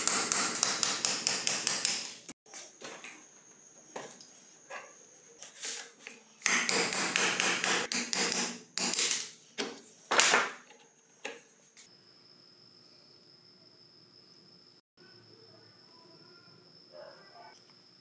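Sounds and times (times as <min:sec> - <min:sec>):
hammer striking metal punch: 0:00.0 - 0:02.1, 0:06.4 - 0:09.2.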